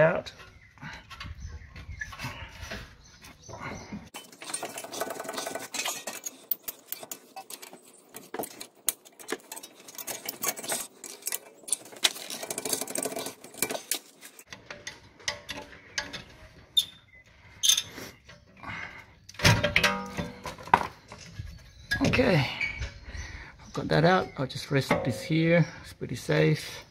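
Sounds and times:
metal scraping and rattling: 4.1s - 23.0s, 24.8s - 25.5s.

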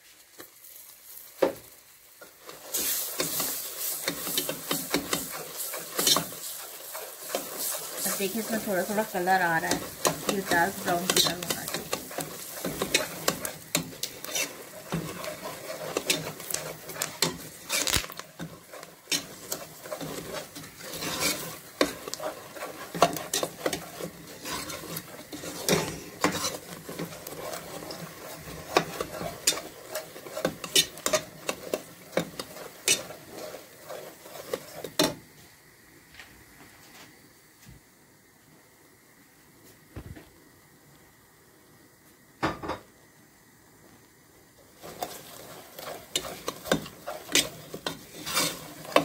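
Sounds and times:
light sizzle: 0.0s - 49.0s
ladle scraping metal pot: 2.6s - 35.1s, 44.8s - 49.0s.

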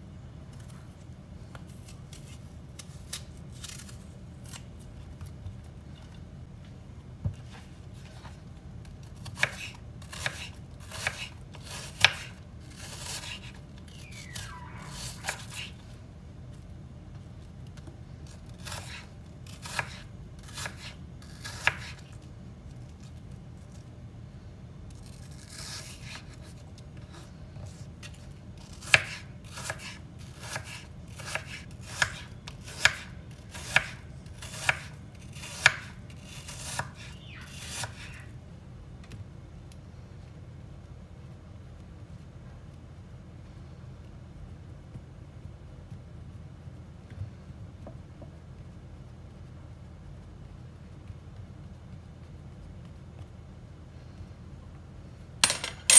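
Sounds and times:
knife scraping: 1.7s - 4.7s, 9.3s - 15.8s, 25.0s - 38.3s.

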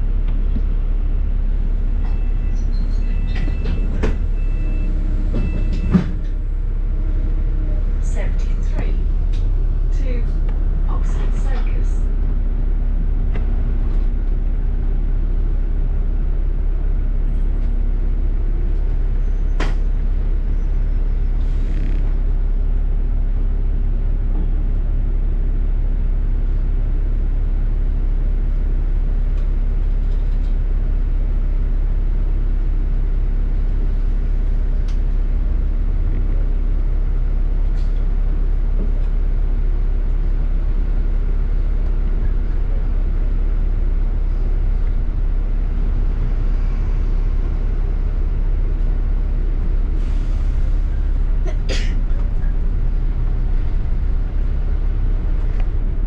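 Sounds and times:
bus engine and road rumble: 0.0s - 56.0s
faint constant hum: 6.9s - 15.2s.

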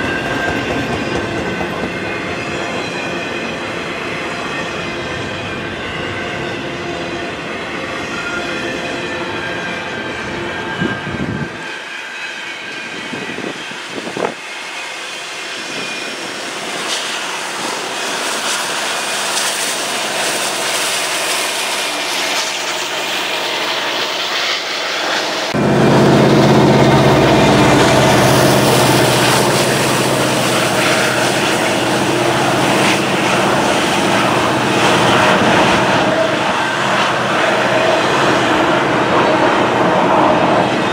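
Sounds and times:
train wheels rumbling on rail: 0.0s - 40.9s
steady low drone: 21.6s - 40.9s.

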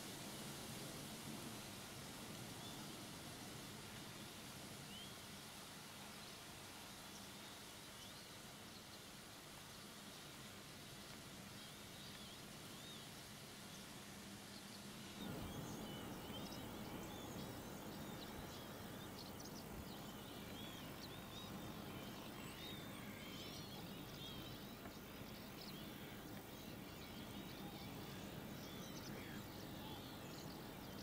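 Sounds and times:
steady outdoor hiss: 0.0s - 31.0s
songbirds chirping: 0.8s - 31.0s.

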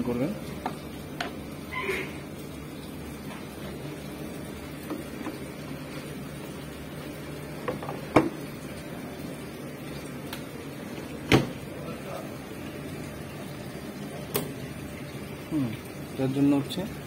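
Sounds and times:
dryer door thumping shut: 11.3s - 11.6s.

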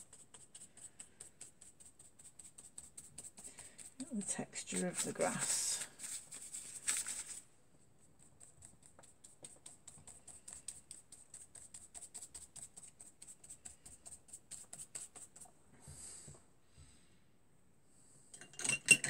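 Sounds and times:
brush scrubbing rustle: 0.0s - 7.4s
paintbrush dabbing on paper: 0.0s - 15.6s.

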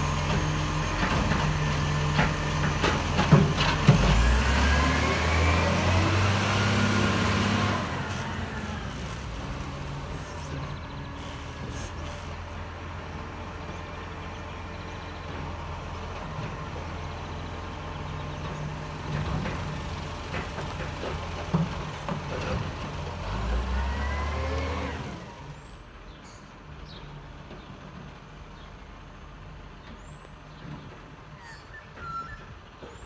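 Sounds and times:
garbage truck engine running: 0.0s - 25.7s.

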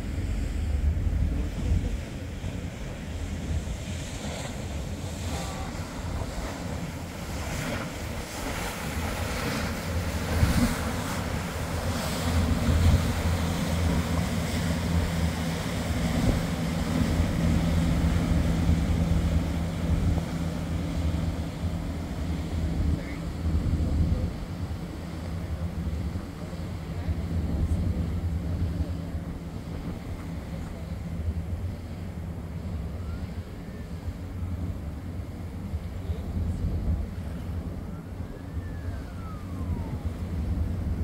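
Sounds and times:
boat engines humming: 0.0s - 41.0s
boat wake churning: 0.0s - 41.0s
wind buffeting microphone: 0.0s - 41.0s.

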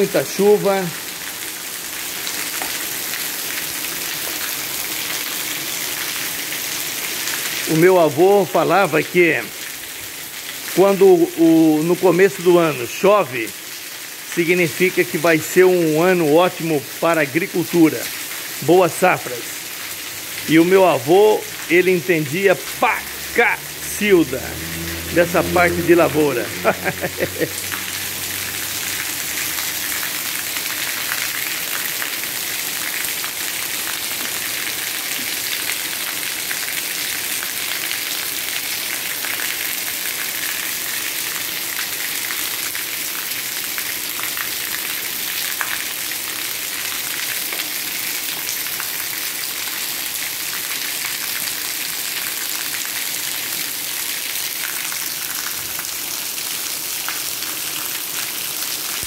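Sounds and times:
heavy rain hiss: 0.0s - 4.9s, 6.3s - 41.0s.

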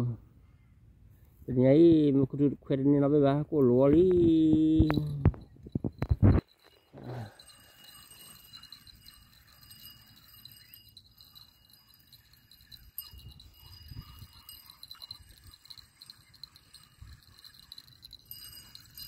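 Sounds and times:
wind rumbling on microphone: 3.8s - 6.5s, 12.7s - 19.0s
insects chirping: 5.0s - 19.0s.

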